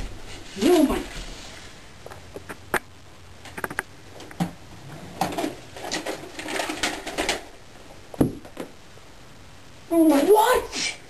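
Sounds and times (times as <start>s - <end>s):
rustling: 0.0s - 2.8s, 3.4s - 8.8s
objects knocking and clicking: 3.5s - 7.6s.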